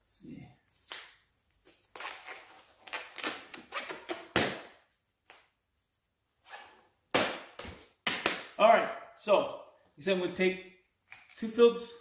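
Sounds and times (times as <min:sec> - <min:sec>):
rubber gloves snapping and rustling: 0:00.7 - 0:05.6.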